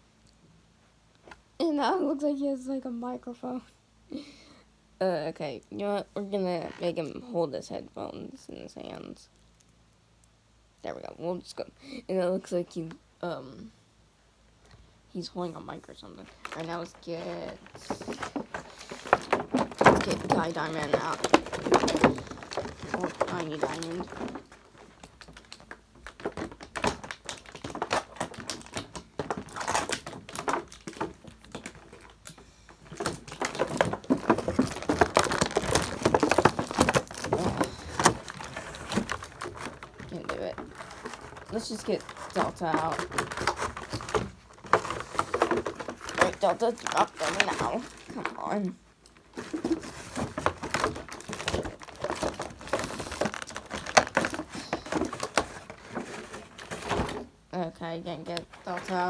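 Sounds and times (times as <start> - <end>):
plastic packaging crinkling: 15.6 - 59.0.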